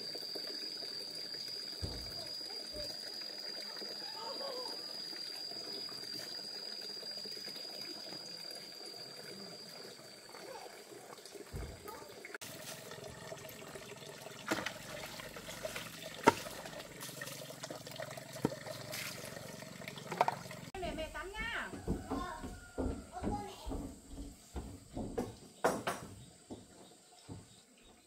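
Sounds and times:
water running and trickling: 0.0 - 25.3
sharp knocks: 21.7 - 26.7.

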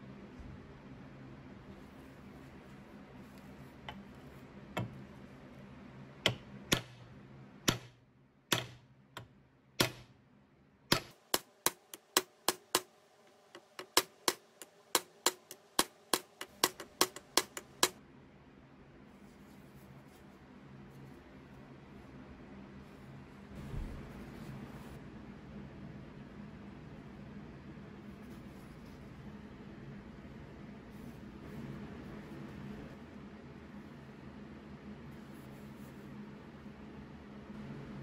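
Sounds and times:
hammer tapping metal rivets: 8.5 - 10.0, 10.9 - 12.9, 13.6 - 18.0.

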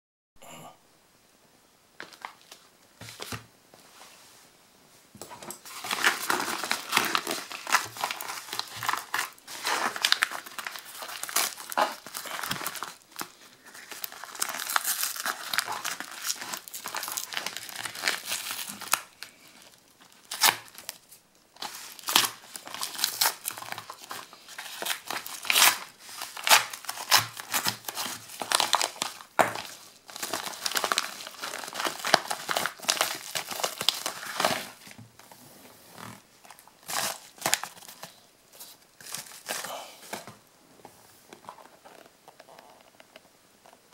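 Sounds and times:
paper and plastic tearing and crinkling: 5.6 - 35.0, 35.9 - 40.4.

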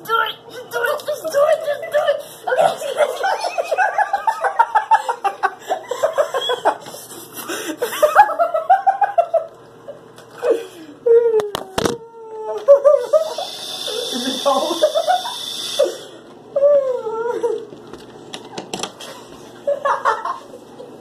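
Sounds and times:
boy laughing in bursts: 2.5 - 9.5, 12.7 - 16.0.

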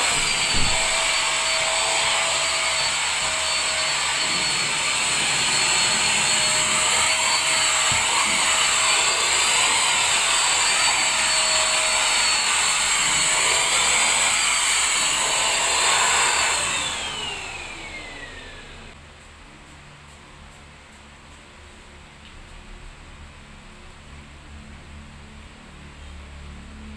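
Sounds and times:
handheld vacuum cleaner whine: 0.0 - 19.0.

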